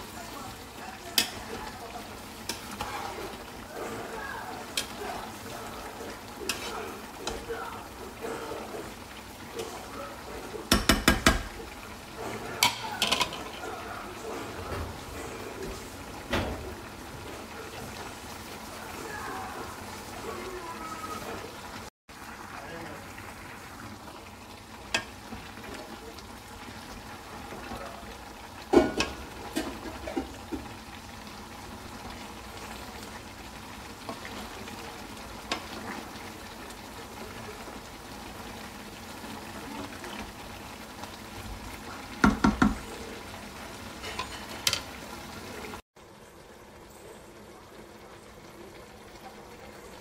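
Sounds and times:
pot simmering hiss: 0.0s - 50.0s
wooden spoon knocking pot: 10.7s - 11.6s, 42.2s - 42.8s.

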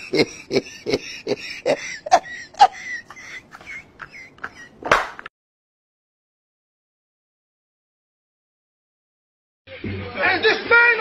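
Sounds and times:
man laughing hard: 0.0s - 4.9s.

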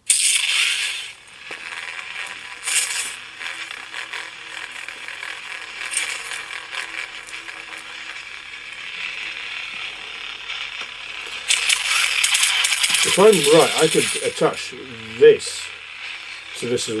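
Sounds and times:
lightsaber hum through speaker: 1.8s - 17.0s.

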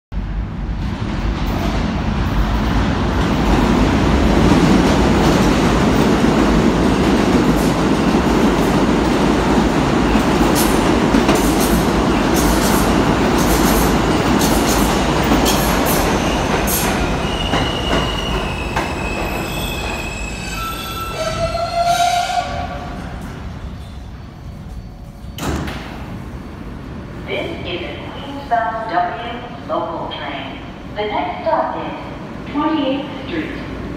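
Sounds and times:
rumble of train wheels on track: 0.1s - 31.0s
high brake squealing: 17.2s - 22.3s.

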